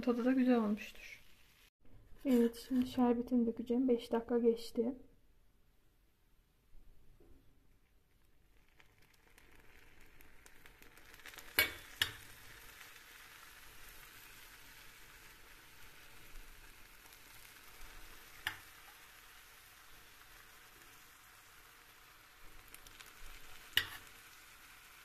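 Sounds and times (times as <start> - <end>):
syrup sizzling on hot pastries: 0.0 - 1.7, 7.8 - 25.0.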